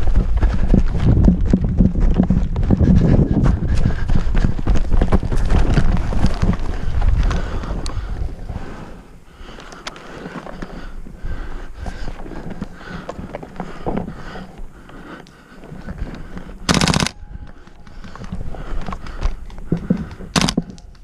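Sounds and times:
running footfalls: 0.0s - 8.8s, 9.4s - 21.0s
wind rumbling on microphone: 0.0s - 21.0s
sharp clicks: 16.1s - 21.0s.

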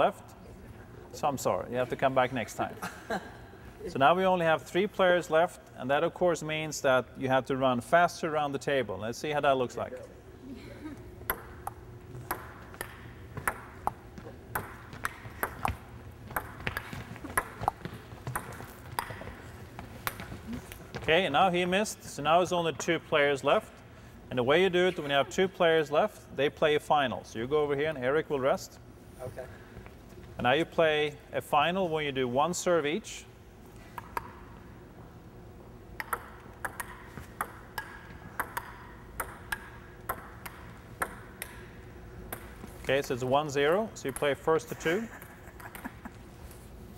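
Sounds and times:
table tennis ball clicking: 11.3s - 19.3s, 36.0s - 41.6s.

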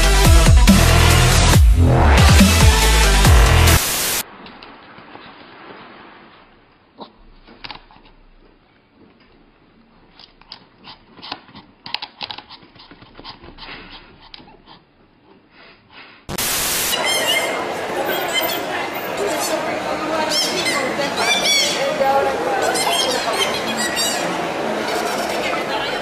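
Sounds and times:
loud street noise: 16.3s - 26.0s.

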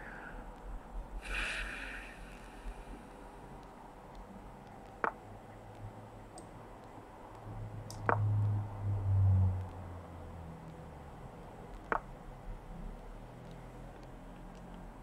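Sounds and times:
low hum: 0.0s - 15.0s
chess piece move clicks: 3.6s - 8.6s, 11.7s - 12.1s, 13.0s - 14.9s.

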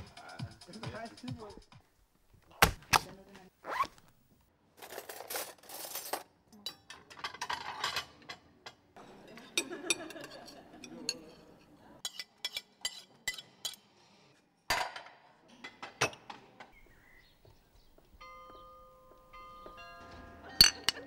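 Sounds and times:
cutlery scraping on a plate: 5.1s - 14.4s
glass bottles clinking: 19.5s - 21.0s.

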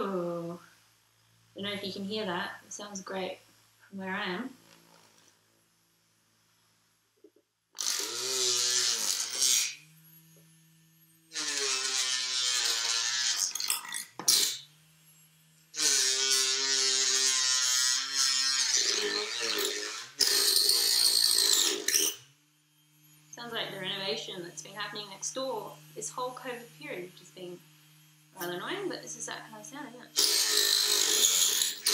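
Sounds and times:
buzzing bursts: 7.8s - 31.9s.

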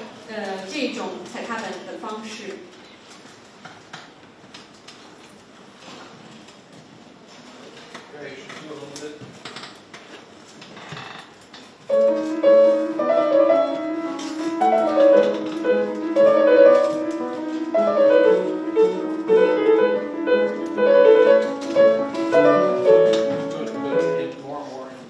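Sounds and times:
grand piano playing: 11.9s - 24.7s.

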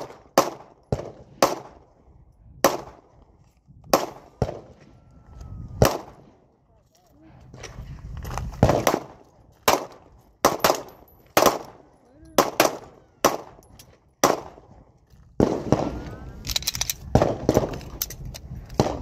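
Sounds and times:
pistol shots: 0.0s - 1.9s, 2.6s - 3.0s, 3.9s - 4.8s, 5.8s - 6.4s, 8.6s - 14.8s.

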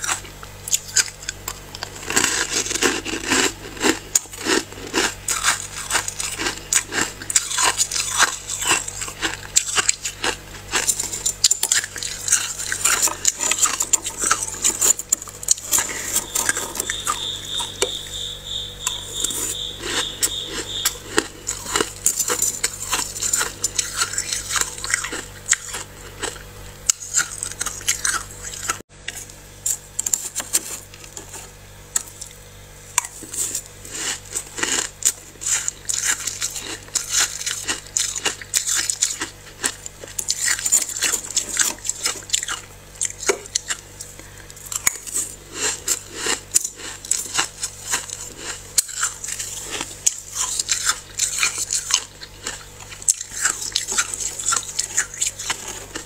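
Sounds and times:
frost being scraped and crunched: 1.8s - 17.9s
high-pitched tone: 15.9s - 21.3s.

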